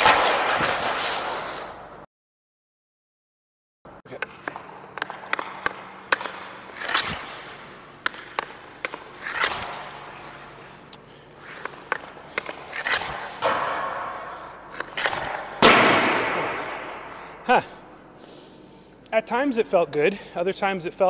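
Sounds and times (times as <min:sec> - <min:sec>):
hockey stick slapshot cracks: 0:00.0 - 0:01.8, 0:04.2 - 0:10.3, 0:10.9 - 0:17.0
echo around the rink: 0:00.0 - 0:02.0, 0:03.9 - 0:21.0.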